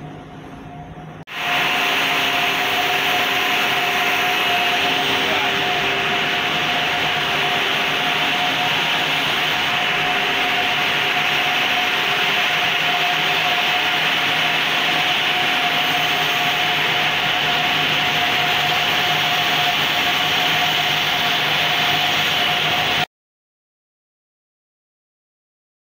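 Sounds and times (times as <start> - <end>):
constant high tone: 0.2 - 23.1
spinning machines whirring: 0.2 - 23.1.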